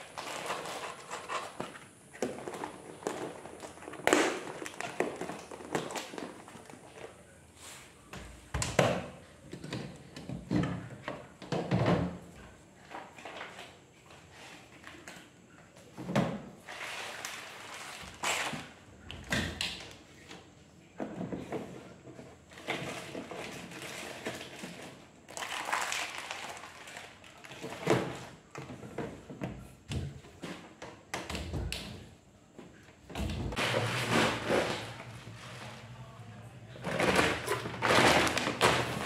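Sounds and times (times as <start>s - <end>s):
items clattering on a shelf: 0.0s - 7.2s, 8.1s - 36.0s, 36.7s - 39.0s
plastic packets rustling and crinkling: 0.0s - 7.4s, 16.6s - 18.9s, 22.5s - 28.5s, 36.8s - 39.0s.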